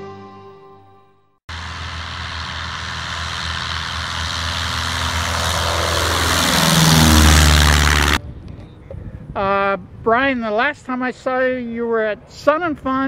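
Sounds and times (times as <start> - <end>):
light aircraft engine drone: 1.5 - 8.2.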